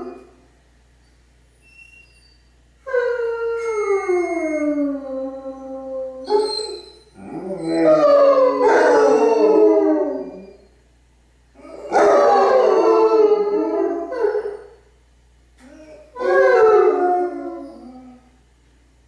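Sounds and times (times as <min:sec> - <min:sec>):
hounds howling together: 0:02.9 - 0:10.6, 0:11.6 - 0:14.7, 0:15.7 - 0:18.2.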